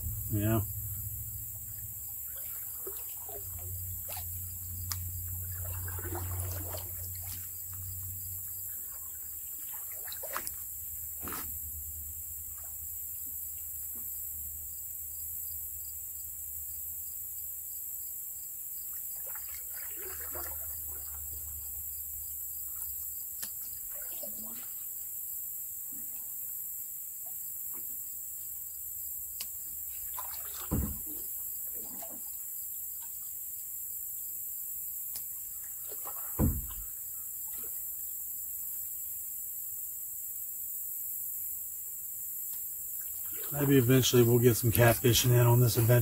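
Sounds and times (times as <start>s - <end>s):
high insect drone: 0.0s - 46.0s
soft water sounds: 1.4s - 13.9s, 18.7s - 28.6s, 29.4s - 33.4s, 35.1s - 38.3s, 42.8s - 46.0s
knocks on canoe: 30.7s - 31.2s, 36.4s - 36.9s.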